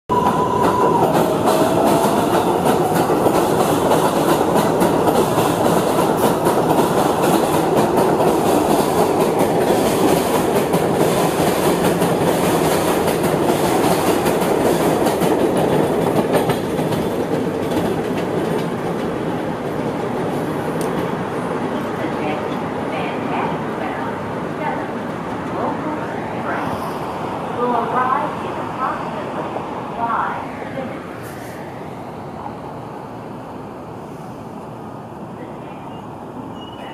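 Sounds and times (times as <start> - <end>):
train wheels clattering over rails: 0.1 - 22.7.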